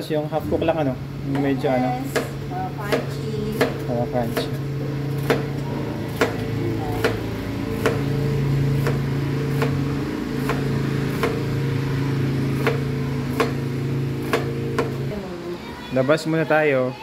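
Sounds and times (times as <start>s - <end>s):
steady low hum: 0.0s - 16.2s
knife chopping on cutting board: 2.9s - 5.5s, 6.1s - 8.1s, 8.8s - 9.8s, 10.4s - 11.4s, 12.6s - 13.6s, 14.2s - 15.0s.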